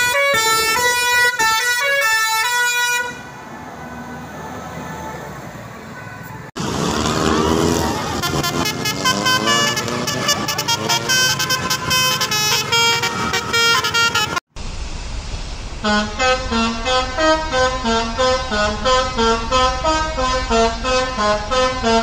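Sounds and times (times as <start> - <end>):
second bus horn tune: 0.0 - 3.3, 7.2 - 14.4, 15.8 - 22.0
musical bus horn melody: 0.0 - 3.4, 5.9 - 14.5, 15.8 - 22.0.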